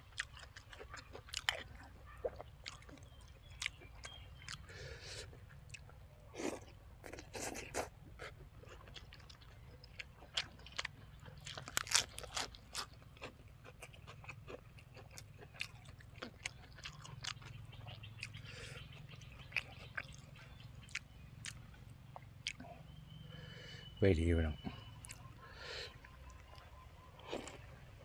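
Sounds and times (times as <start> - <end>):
person chewing food: 0.0 - 23.5, 24.8 - 28.0.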